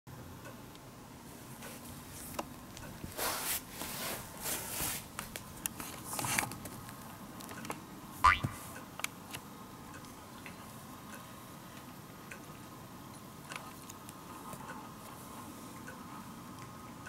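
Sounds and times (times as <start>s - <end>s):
cat rustling on a mat: 3.0s - 6.8s.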